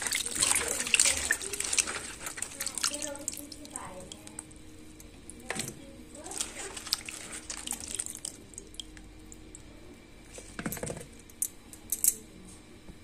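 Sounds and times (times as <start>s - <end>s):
water sloshing and dripping: 0.0s - 9.7s.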